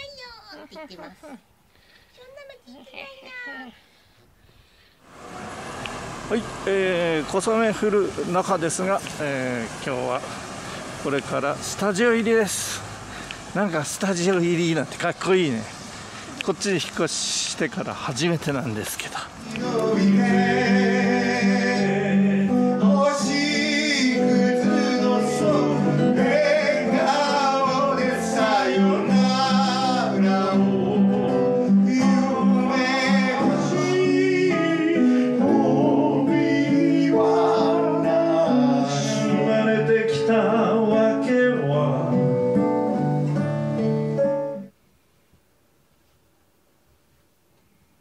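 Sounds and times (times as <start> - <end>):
acoustic guitar: 19.3 - 44.8
men singing: 19.4 - 42.4.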